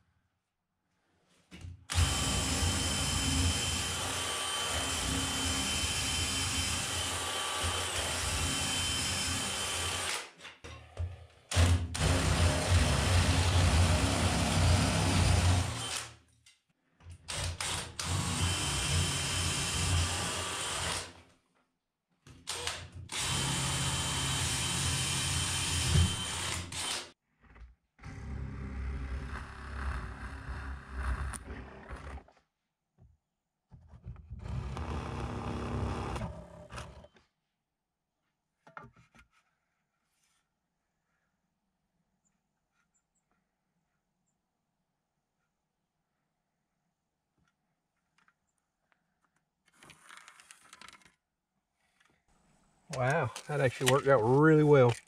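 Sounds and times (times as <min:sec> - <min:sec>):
cordless drill boring through wood: 0:01.9 - 0:10.3, 0:11.5 - 0:16.2, 0:17.3 - 0:21.2, 0:22.5 - 0:27.2, 0:34.3 - 0:37.2.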